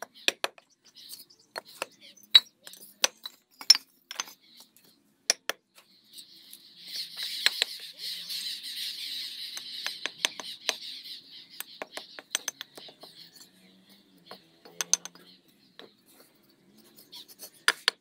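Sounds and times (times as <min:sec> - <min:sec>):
hammer tapping bricks: 0:00.0 - 0:04.7, 0:05.3 - 0:05.6, 0:07.2 - 0:07.9, 0:09.6 - 0:10.9, 0:11.6 - 0:13.3, 0:14.3 - 0:15.9, 0:17.6 - 0:18.0
birds chattering: 0:00.0 - 0:18.0.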